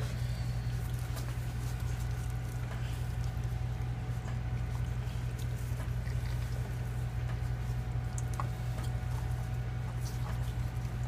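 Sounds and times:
soft rustles: 0:00.0 - 0:07.8
low hum: 0:00.0 - 0:11.0.

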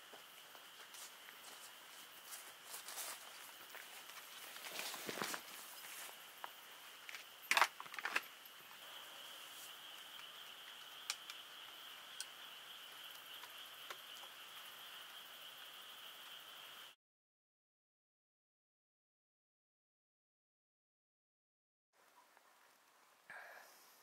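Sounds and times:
night insects trilling: 0:00.0 - 0:17.0.

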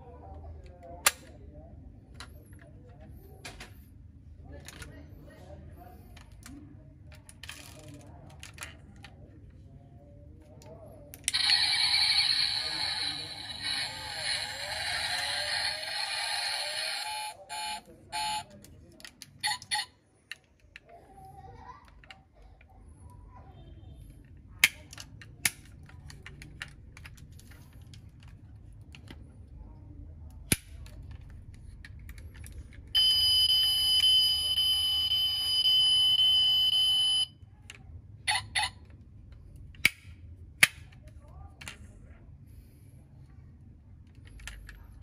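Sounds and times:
toy sound module noise: 0:11.3 - 0:18.5, 0:33.0 - 0:37.3, 0:38.2 - 0:38.9
toy car parts clicking: 0:24.6 - 0:29.3, 0:44.0 - 0:45.0.

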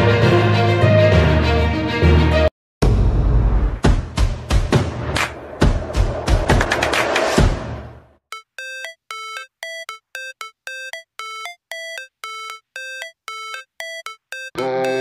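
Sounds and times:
electronic beeping melody: 0:08.3 - 0:15.0.

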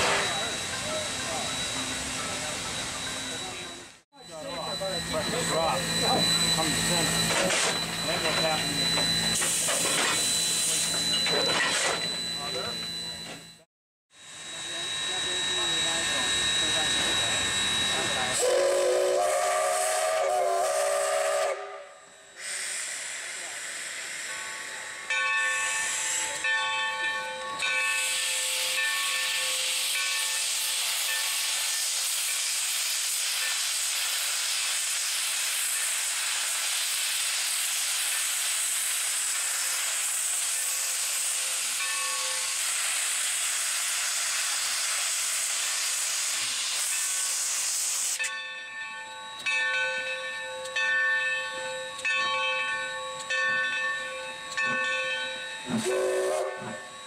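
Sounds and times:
steam locomotive hissing steam: 0:00.0 - 0:13.4, 0:14.2 - 0:57.0
locomotive bell ringing: 0:00.0 - 0:13.7, 0:14.3 - 0:19.5, 0:24.0 - 0:31.9, 0:40.5 - 0:42.8, 0:48.2 - 0:57.0.

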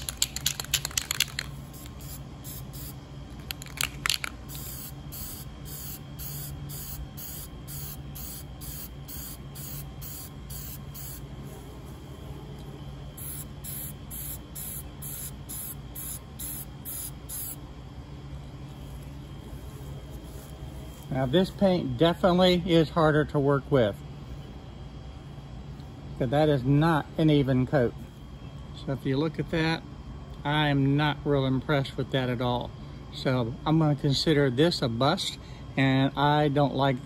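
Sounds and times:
sharp clicks: 0:00.0 - 0:02.0
spray can hissing: 0:00.0 - 0:11.6, 0:13.2 - 0:17.6.

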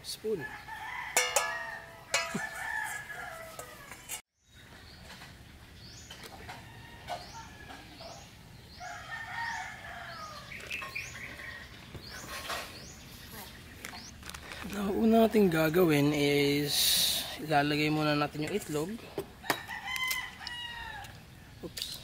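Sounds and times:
rooster crowing: 0:00.4 - 0:04.2, 0:06.5 - 0:08.0, 0:08.8 - 0:10.5, 0:19.4 - 0:21.2
spoon clinking on metal bowl: 0:01.2 - 0:02.8.

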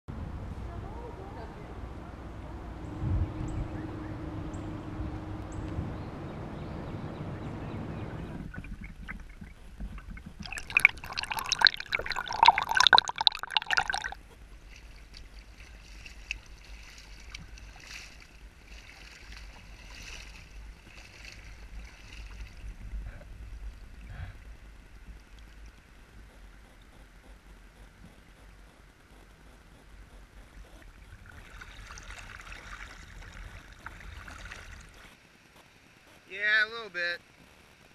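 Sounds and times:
low rumble: 0:00.1 - 0:10.5
rapid splashing: 0:08.4 - 0:22.8, 0:30.5 - 0:35.3
boots splashing through floodwater: 0:14.7 - 0:22.6.

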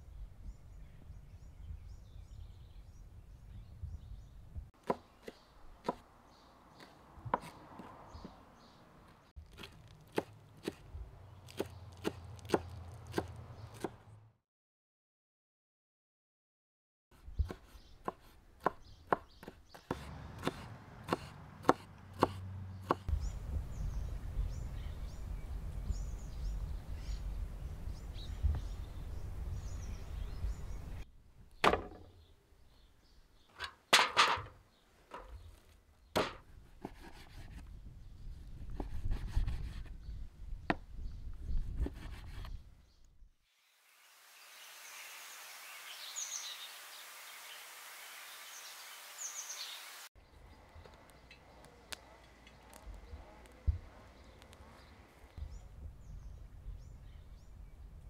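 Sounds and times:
knife chopping on wooden board: 0:06.8 - 0:08.4, 0:11.5 - 0:14.0, 0:17.4 - 0:23.1.

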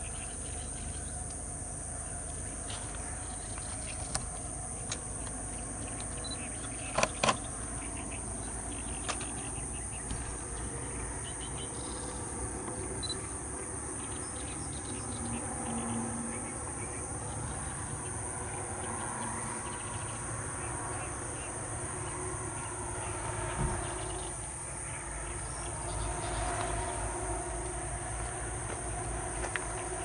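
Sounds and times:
high-pitched insect drone: 0:00.0 - 0:30.0
sharp clicks: 0:04.0 - 0:07.5.

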